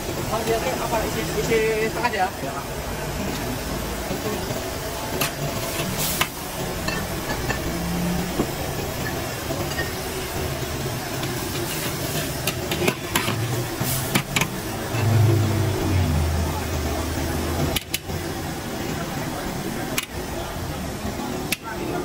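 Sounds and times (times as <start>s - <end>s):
broth simmering: 0.0s - 22.0s
gas burner rushing: 3.2s - 20.9s
low hum: 6.5s - 10.4s, 14.5s - 18.5s.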